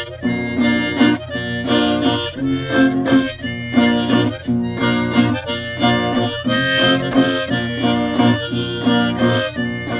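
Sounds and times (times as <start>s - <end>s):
instrumental music with short repeated notes: 0.0s - 9.9s.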